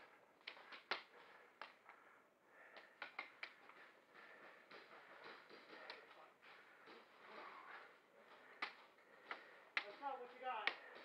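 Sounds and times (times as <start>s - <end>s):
faint sharp clicks and snaps: 0.4s - 2.0s, 2.7s - 3.9s, 8.5s - 10.0s.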